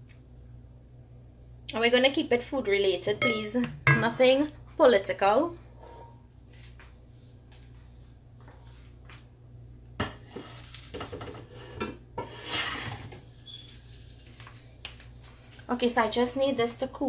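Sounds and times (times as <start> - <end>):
spoon and bowl clattering: 3.2 - 4.4.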